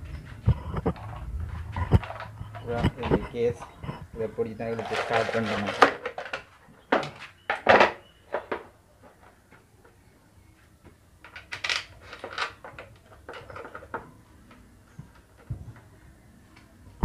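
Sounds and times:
metal tools clinking and knocking: 1.8s - 6.4s.

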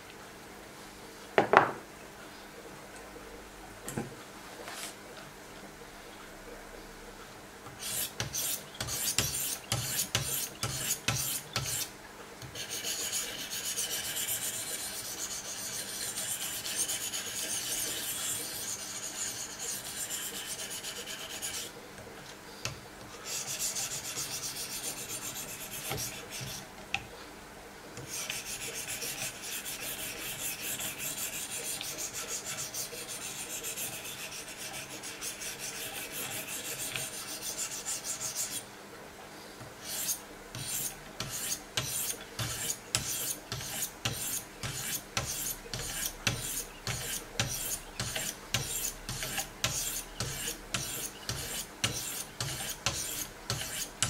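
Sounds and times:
sharpening stone scraping blade: 39.8s - 53.9s.

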